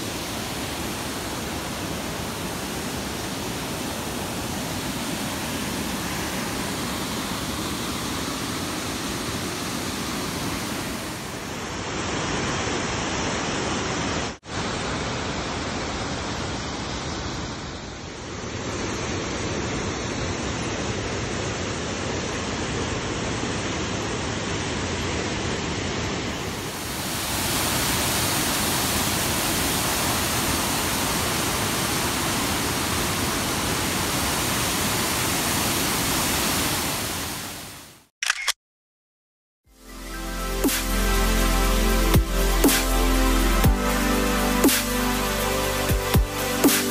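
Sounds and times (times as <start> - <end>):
waterfall rushing: 0.0 - 17.8, 25.6 - 37.6, 40.3 - 46.9.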